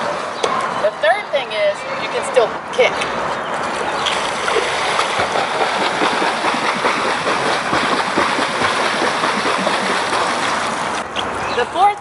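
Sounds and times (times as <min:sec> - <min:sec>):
flutter kick splashing: 0:04.1 - 0:11.0.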